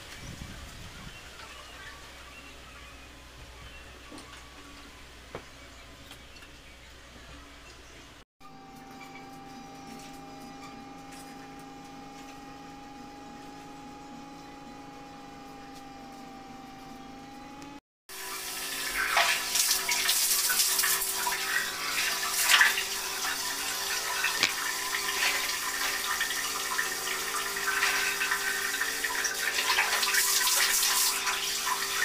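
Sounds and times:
water running and splashing: 0:18.1 - 0:32.0.

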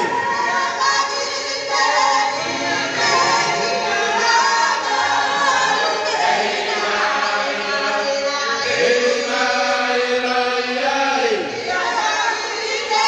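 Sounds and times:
congregation singing a hymn: 0:00.0 - 0:13.0.

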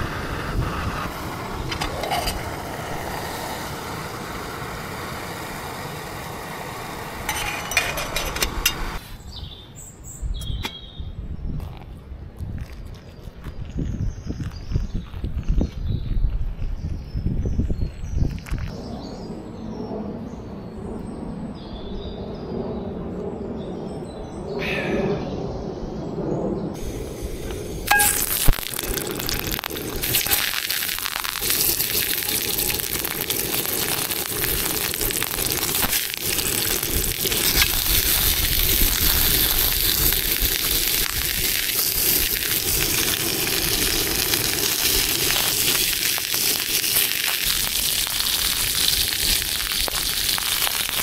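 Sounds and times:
sausages sizzling in a skillet: 0:00.0 - 0:09.0, 0:26.8 - 0:51.0.

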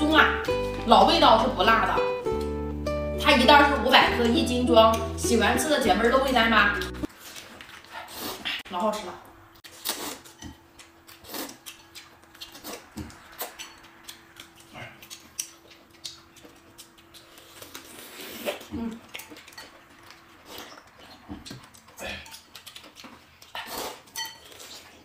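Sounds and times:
crisp crunching and wet chewing: 0:09.6 - 0:25.0
slurping noodles: 0:17.4 - 0:18.7.

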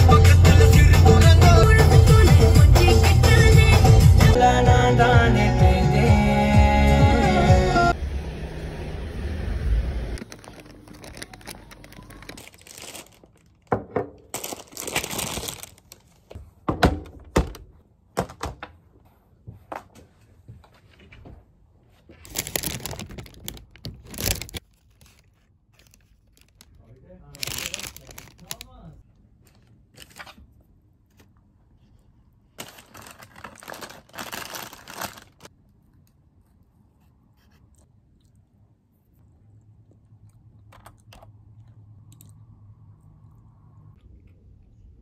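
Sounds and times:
paper bag rustling: 0:10.2 - 0:16.3, 0:22.1 - 0:28.8, 0:32.6 - 0:35.5.

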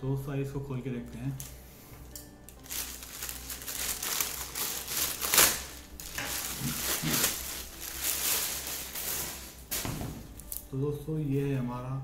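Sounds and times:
plastic mailer bag crinkling: 0:02.6 - 0:10.7.

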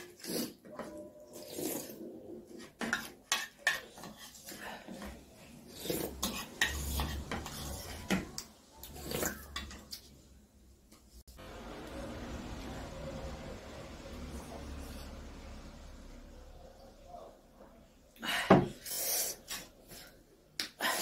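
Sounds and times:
slurping and mouth sounds: 0:01.3 - 0:02.6, 0:18.7 - 0:19.8.

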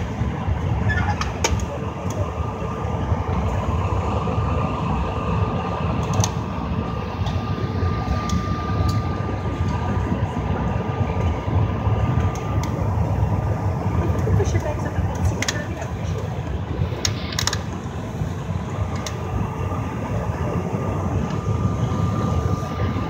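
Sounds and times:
aircraft cabin rumble: 0:00.0 - 0:23.0
thin steady whine: 0:00.0 - 0:23.0.

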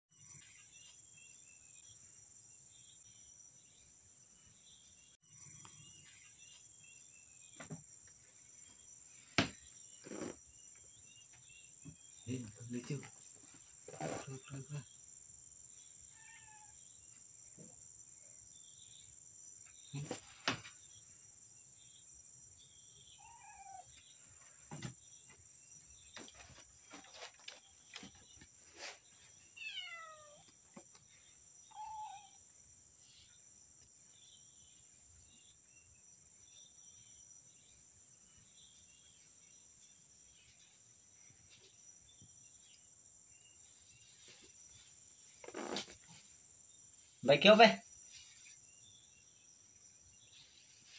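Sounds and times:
high insect trill: 0:00.1 - 0:50.9
cats meowing: 0:16.1 - 0:16.8, 0:23.2 - 0:23.9, 0:29.6 - 0:30.5, 0:31.7 - 0:32.4.

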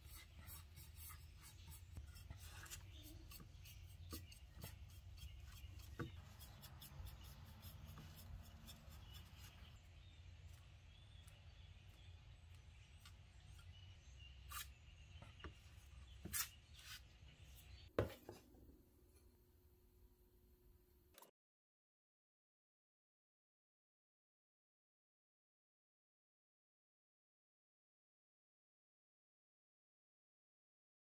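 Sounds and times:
brush dabbing on wood: 0:00.0 - 0:14.8.

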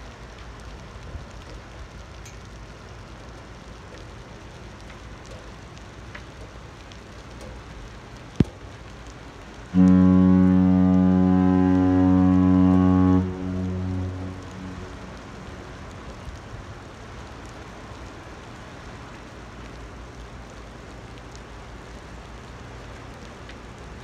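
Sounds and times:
rain hissing: 0:00.0 - 0:24.0
ship horn blast: 0:09.7 - 0:16.9.

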